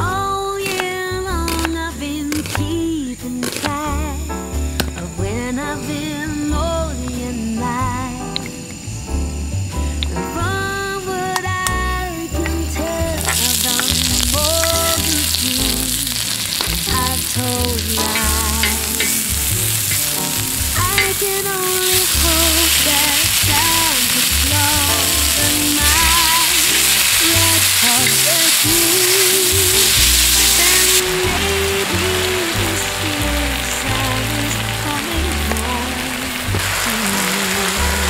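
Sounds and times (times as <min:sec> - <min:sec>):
onion and beef sizzling: 0:00.0 - 0:38.0.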